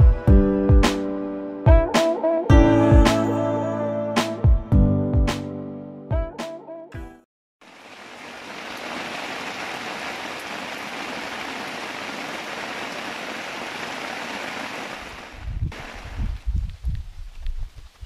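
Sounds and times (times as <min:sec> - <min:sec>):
heavy rain on tent: 0:07.6 - 0:16.5.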